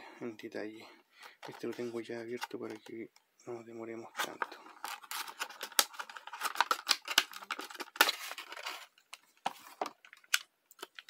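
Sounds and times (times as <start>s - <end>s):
plastic packaging crinkling: 4.2s - 11.0s.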